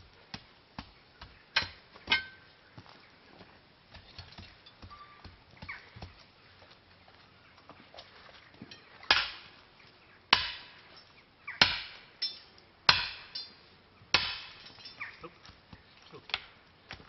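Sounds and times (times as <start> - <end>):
sledgehammer striking hot iron: 1.6 - 2.4, 9.1 - 9.5, 10.3 - 10.8, 11.6 - 15.0.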